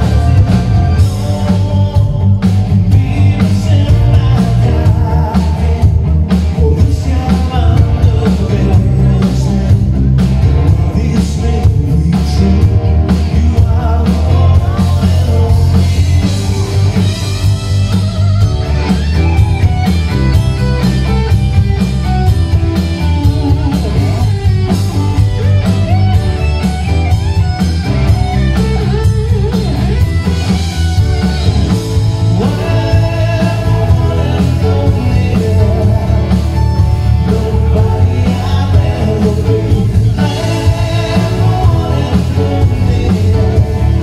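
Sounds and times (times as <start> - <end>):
man singing lead vocal: 0.0 - 17.2, 32.2 - 44.0
distorted electric guitar: 0.0 - 44.0
drum kit: 0.0 - 44.0
keyboards: 0.0 - 44.0.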